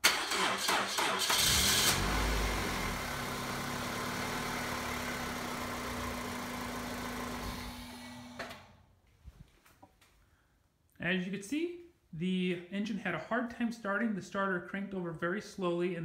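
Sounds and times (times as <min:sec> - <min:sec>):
car engine idling: 0:01.4 - 0:08.2.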